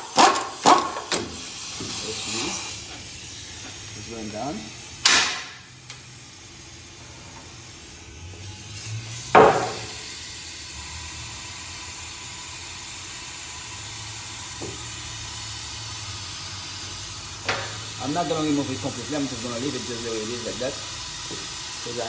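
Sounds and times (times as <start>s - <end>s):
sharp metallic clank: 5.0s - 5.6s.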